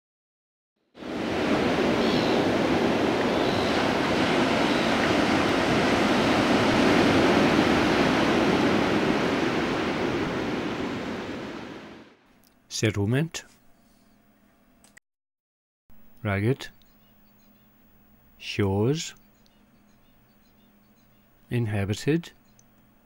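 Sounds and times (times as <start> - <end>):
ocean waves washing: 1.0 - 12.2.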